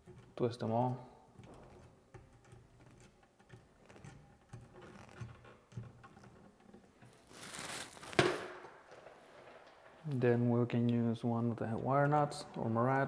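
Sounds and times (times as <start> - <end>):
wire scraping: 0.0 - 8.1.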